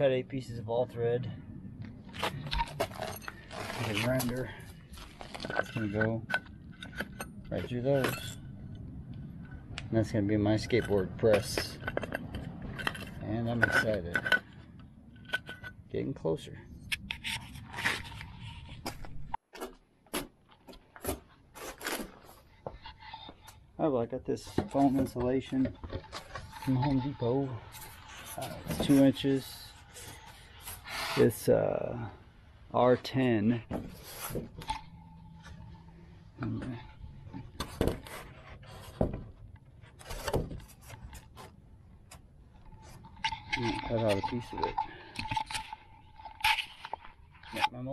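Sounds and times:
scraping and rubbing of objects: 1.8 - 19.4, 20.9 - 47.9
boards scraping and rubbing: 24.7 - 31.6.

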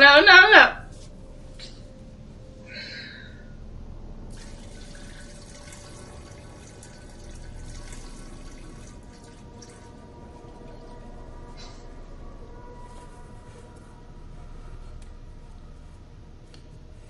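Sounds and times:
faint hum: 0.0 - 17.0
urine trickling into toilet bowl: 4.3 - 11.0.

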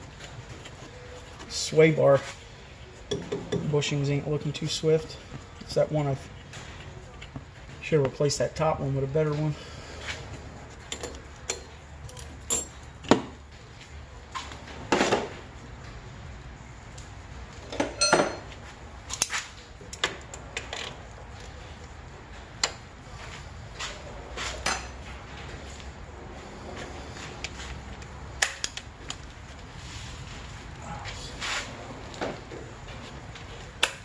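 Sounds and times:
metal tools clinking: 10.8 - 13.0, 18.0 - 21.0.

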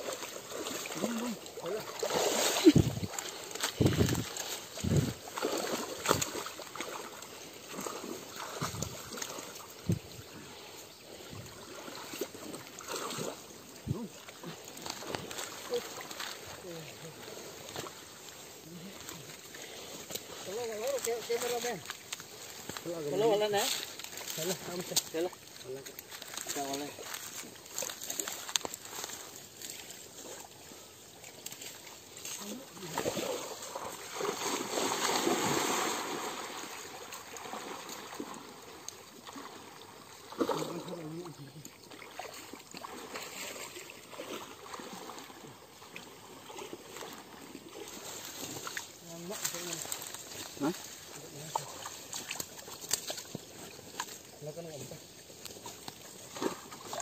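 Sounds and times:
net splashing in water: 0.0 - 10.0, 11.6 - 18.1, 31.4 - 41.2, 41.9 - 54.3, 55.4 - 57.0
stream water sloshing and trickling: 0.0 - 57.0.

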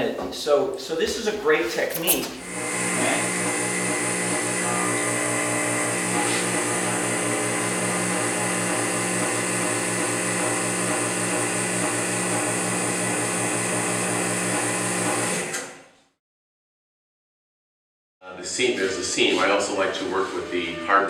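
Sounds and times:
vacuum pump pulsing hum: 2.4 - 15.6.

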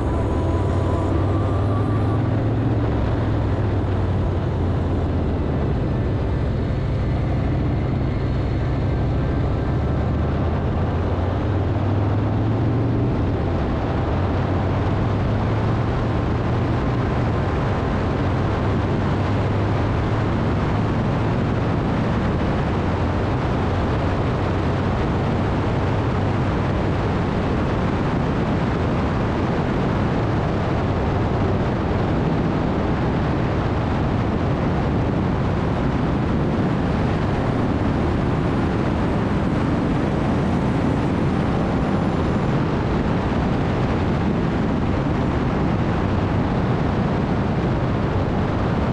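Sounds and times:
motorcycle engine running: 0.0 - 22.2
wind and road noise: 0.0 - 48.9.

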